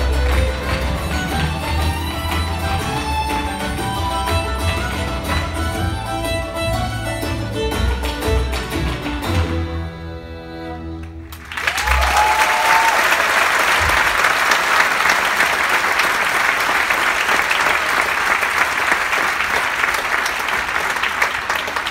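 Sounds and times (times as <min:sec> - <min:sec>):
audience applause: 0:00.0 - 0:05.7, 0:11.3 - 0:21.9
fiddle banjo and guitar chord: 0:00.0 - 0:11.2
audience cheering: 0:11.3 - 0:21.9.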